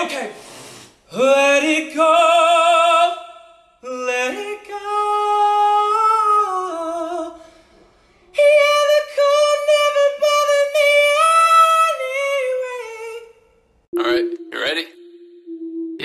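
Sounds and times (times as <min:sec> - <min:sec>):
man singing unaccompanied: 0:01.1 - 0:07.4, 0:08.3 - 0:13.4.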